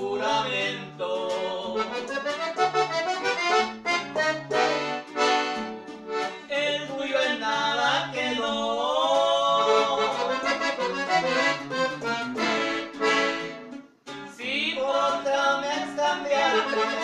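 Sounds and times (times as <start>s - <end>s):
acoustic guitar strumming: 0.0s - 17.0s
accordion playing lively melody: 1.7s - 6.5s, 9.6s - 13.9s, 16.3s - 17.0s.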